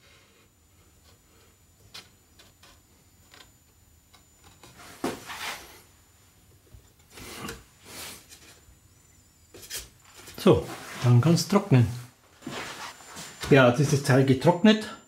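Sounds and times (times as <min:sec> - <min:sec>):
brushing rub: 0:04.8 - 0:05.8, 0:10.6 - 0:11.2, 0:12.4 - 0:13.4.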